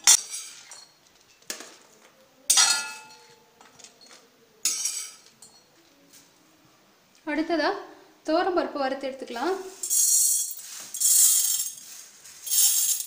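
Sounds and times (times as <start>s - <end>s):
ladle clinking on metal: 2.5s - 5.7s.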